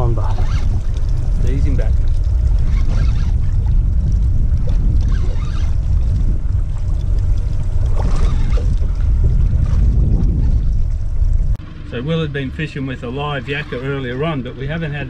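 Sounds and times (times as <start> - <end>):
water splashing against hull: 0.0 - 15.0
wind buffeting microphone: 0.0 - 15.0.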